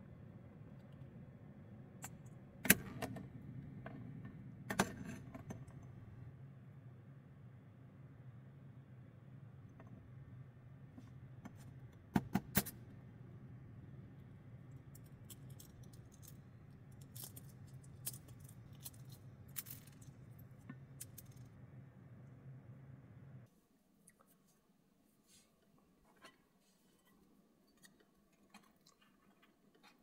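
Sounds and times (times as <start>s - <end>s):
steady low hum: 0.0s - 23.5s.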